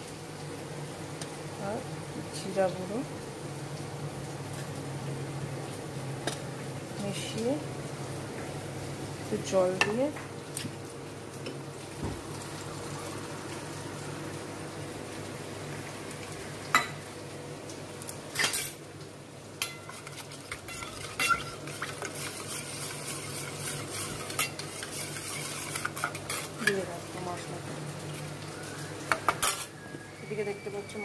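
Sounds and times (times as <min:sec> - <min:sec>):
oil sizzling in pot: 0:00.0 - 0:31.0
metal spoon clinking on cookware: 0:19.6 - 0:26.9.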